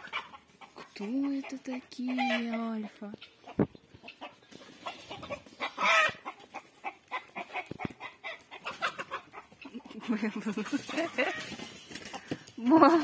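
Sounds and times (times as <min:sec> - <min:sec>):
chickens clucking: 0:00.0 - 0:13.0
chicken squawk: 0:03.4 - 0:11.6.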